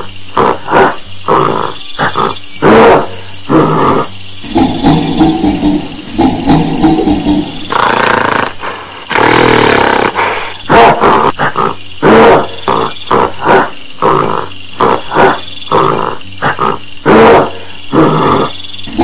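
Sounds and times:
gorilla grunting and barking: 0.0 - 19.0.

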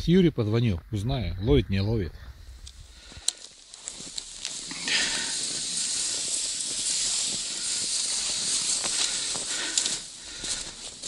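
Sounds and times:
snow crunches: 2.6 - 11.0
sled runners hissing over snow: 2.8 - 11.0.

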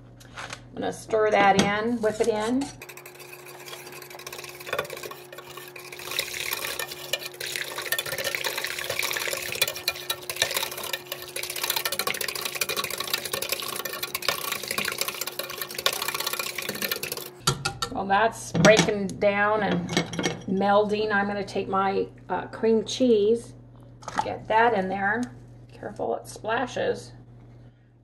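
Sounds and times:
liquid churning and sloshing: 2.7 - 17.4.

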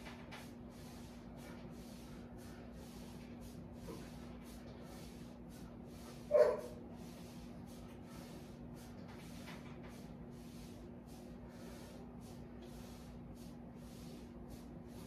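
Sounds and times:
rapid hissing breaths: 0.0 - 15.0
bark-like yelp: 6.3 - 6.8.

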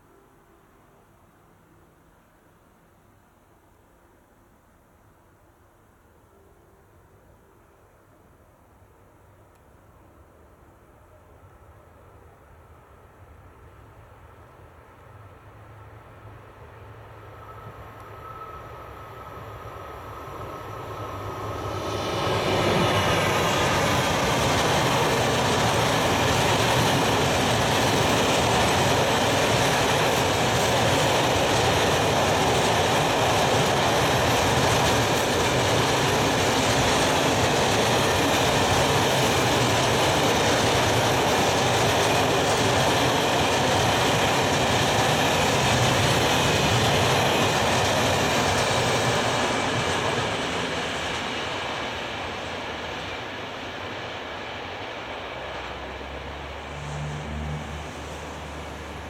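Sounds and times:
train wheels rumbling on rail: 13.4 - 59.0.

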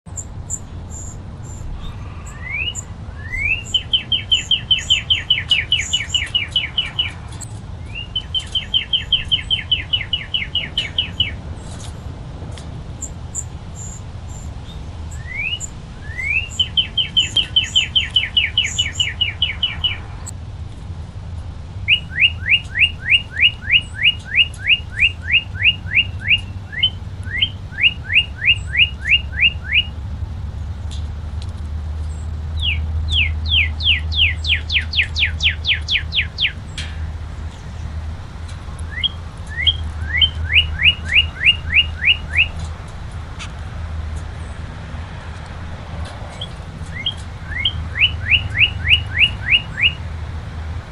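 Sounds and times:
cardinal singing whistles: 1.0 - 7.2, 7.8 - 11.4, 15.1 - 20.0, 21.9 - 30.0, 32.6 - 36.8, 38.8 - 42.7, 46.3 - 50.1.

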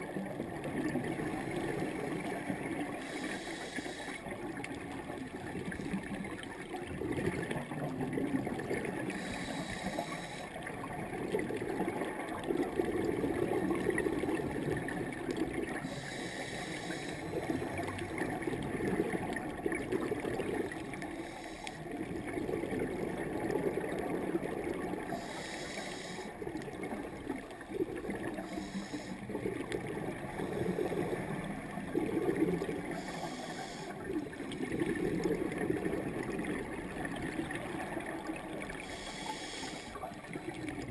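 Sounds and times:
exhaled bubbles gurgling underwater: 0.0 - 40.9
regulator inhalation hiss: 3.0 - 4.3, 9.1 - 10.6, 15.8 - 17.4, 21.1 - 21.9, 25.2 - 26.4, 28.4 - 29.3, 33.0 - 34.0, 38.8 - 40.0.

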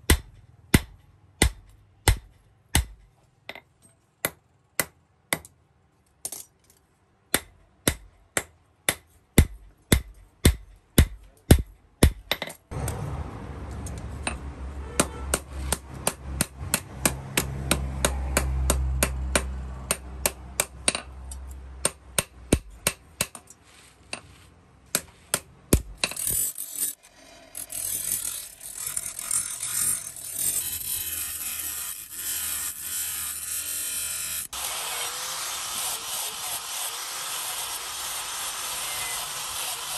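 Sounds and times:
abrasive disc grinding steel: 26.0 - 39.9.

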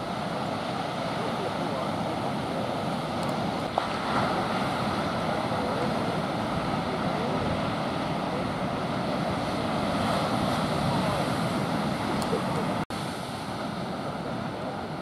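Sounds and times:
surf breaking on beach: 0.0 - 15.0.

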